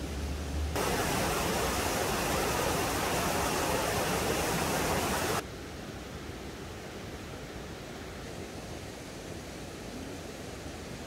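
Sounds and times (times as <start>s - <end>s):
mountain stream rushing: 0.0s - 5.4s.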